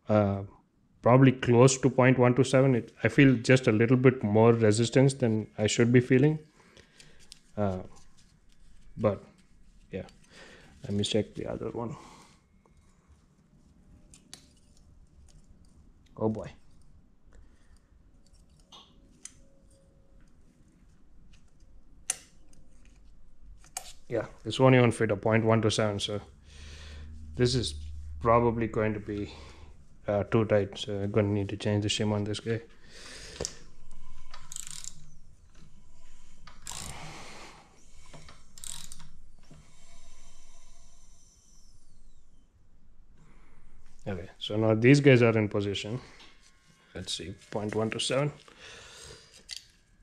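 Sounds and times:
metallic clicks and scrapes: 0:21.4 - 0:24.1, 0:33.4 - 0:37.1, 0:38.0 - 0:40.1
ratchet wrench clicking: 0:34.3 - 0:35.1, 0:36.5 - 0:37.0, 0:38.1 - 0:39.2.

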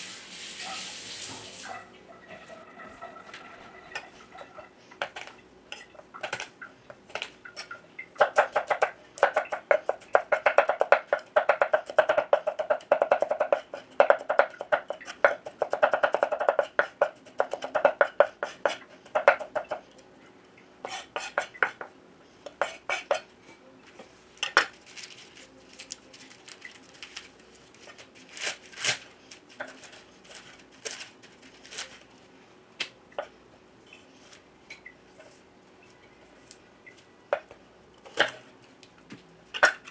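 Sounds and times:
faint steady hum: 0:00.0 - 0:39.9
knife chopping on wooden board: 0:08.2 - 0:19.8.

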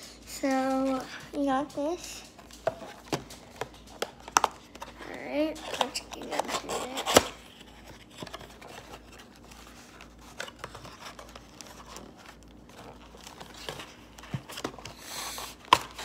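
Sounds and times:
cardboard rustling and crinkling: 0:00.4 - 0:16.0
cardboard tearing: 0:05.3 - 0:16.0.

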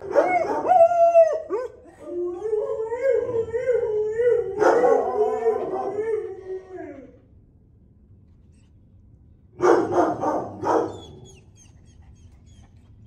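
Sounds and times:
dog howling: 0:00.0 - 0:07.2.

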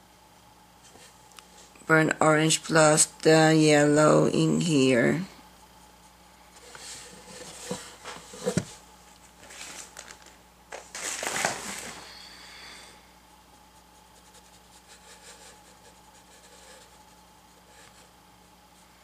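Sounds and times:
scratchy rustle: 0:13.6 - 0:18.2.

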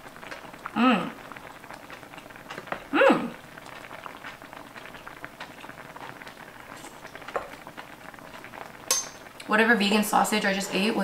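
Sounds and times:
stew bubbling in skillet: 0:00.0 - 0:11.0
person humming mmm: 0:00.6 - 0:01.3, 0:02.8 - 0:03.4.

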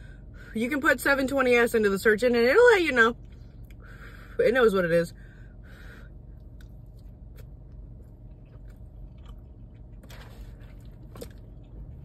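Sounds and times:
close-up chewing: 0:06.4 - 0:12.0.

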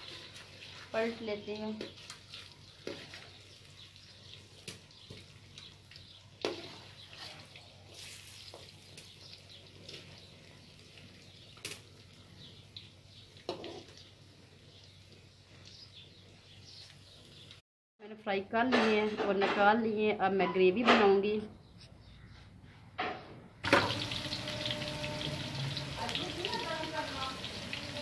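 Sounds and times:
food sizzling in hot oil: 0:00.0 - 0:15.6, 0:23.6 - 0:28.0
metal ladle knocking pan: 0:23.6 - 0:24.3.

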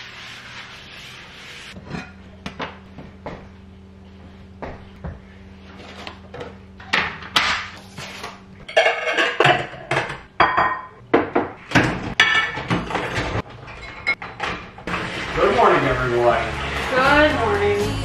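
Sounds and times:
ceramic plates clinking: 0:08.7 - 0:10.9.

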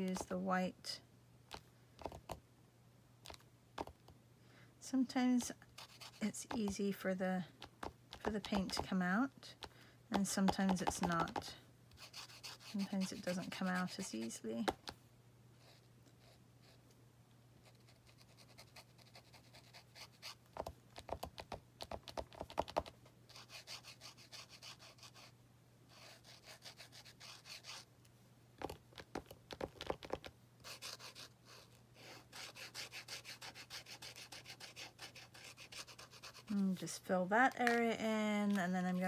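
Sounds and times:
paint marker scratching on board: 0:05.8 - 0:06.8, 0:07.6 - 0:09.0, 0:10.1 - 0:14.8, 0:17.7 - 0:25.3, 0:25.9 - 0:27.9, 0:28.6 - 0:36.6.

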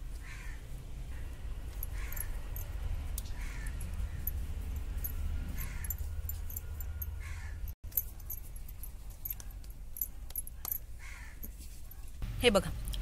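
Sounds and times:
low steady rumble: 0:00.0 - 0:13.0.

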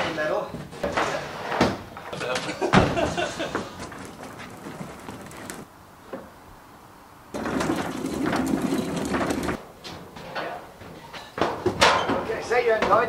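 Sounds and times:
furniture scraping on metal stairs: 0:02.9 - 0:05.7, 0:07.3 - 0:10.5.

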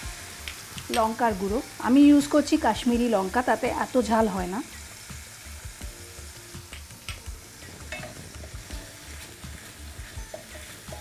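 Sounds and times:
paste sizzling in oil: 0:00.0 - 0:11.0
spatula scraping a pan: 0:07.6 - 0:11.0
spatula tapping: 0:10.1 - 0:11.0.

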